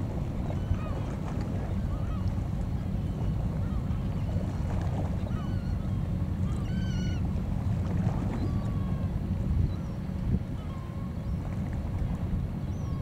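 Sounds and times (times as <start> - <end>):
wind rumbling on microphone: 0.0 - 13.0
birds calling: 5.2 - 7.3.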